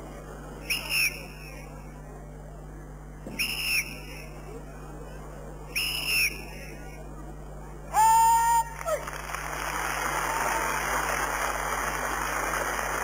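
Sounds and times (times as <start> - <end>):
whistle blasts: 0.6 - 1.5, 3.3 - 4.4, 5.7 - 6.7.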